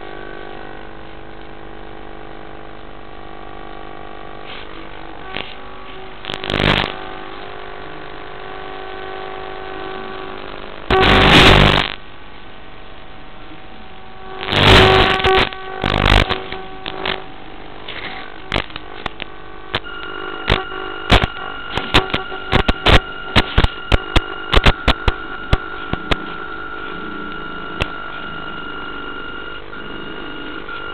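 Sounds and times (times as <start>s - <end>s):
electric motor hum: 14.2s - 30.9s
sharp clicks: 18.5s - 26.2s.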